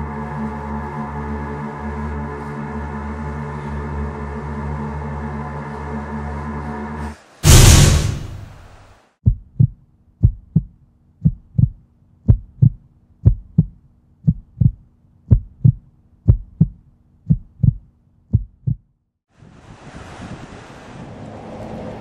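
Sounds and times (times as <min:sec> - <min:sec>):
faint low drone: 0:00.0 - 0:08.0
heartbeat thumps: 0:09.2 - 0:18.9.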